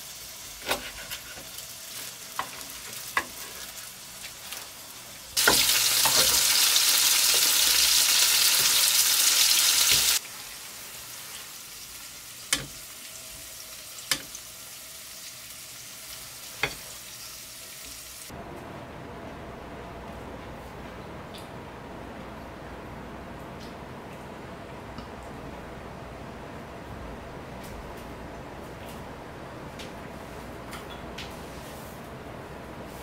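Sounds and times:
food sizzling in hot pan: 0.0s - 18.3s.

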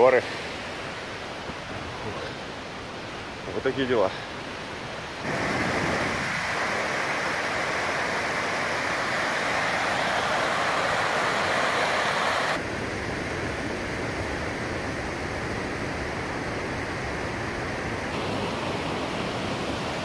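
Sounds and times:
stream rushing over rocks: 0.0s - 12.7s, 18.1s - 20.0s.

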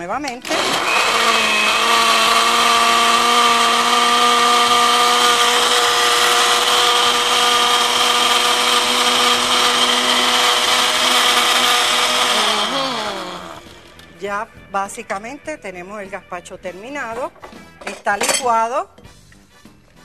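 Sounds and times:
blender motor running: 0.4s - 13.9s.

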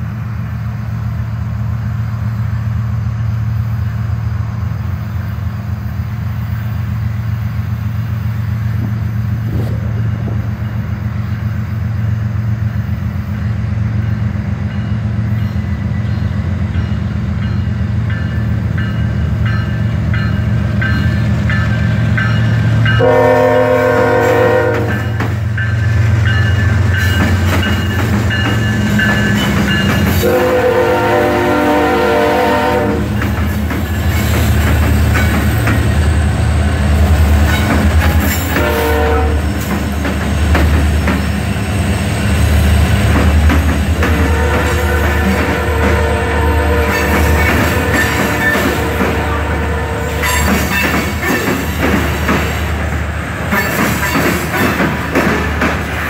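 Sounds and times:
diesel locomotive rumble: 0.0s - 56.0s
train air horn blast: 23.0s - 25.2s, 30.2s - 33.2s, 38.1s - 39.6s, 44.0s - 50.5s.

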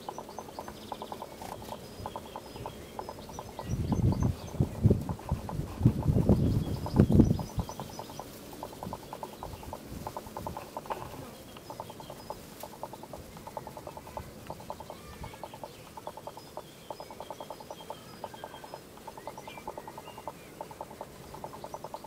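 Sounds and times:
rapid pulsing rattle: 0.0s - 16.4s
faint bird chirps: 0.0s - 22.0s.

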